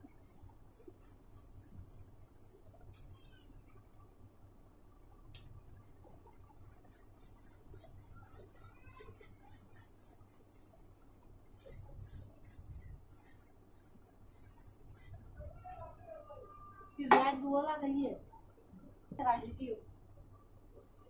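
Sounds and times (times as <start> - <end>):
paintbrush scrubbing on paper: 0.3 - 3.2, 5.8 - 15.2.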